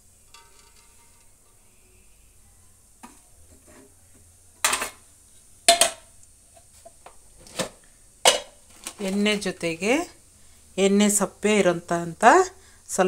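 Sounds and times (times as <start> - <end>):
metal spoon clinking on pot: 0.2 - 1.6.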